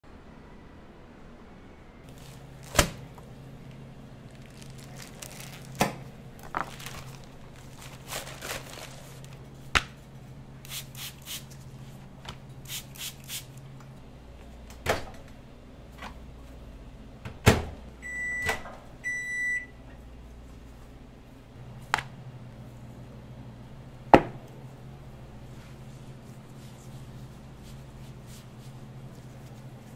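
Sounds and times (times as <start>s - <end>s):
steady low hum: 0.1s - 29.9s
microwave oven beeps: 18.0s - 19.8s.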